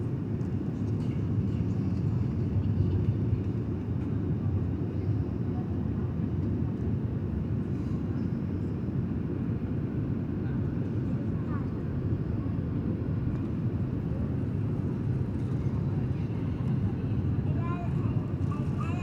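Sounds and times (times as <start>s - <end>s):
airliner cabin roar: 0.0s - 19.0s.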